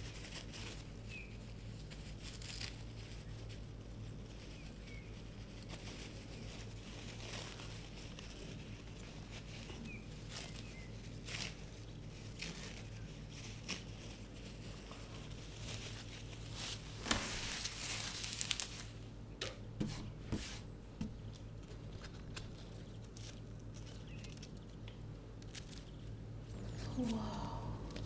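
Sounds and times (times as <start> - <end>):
paper towel rustling and crinkling: 0.0 - 19.0
steady low hum: 0.0 - 28.0.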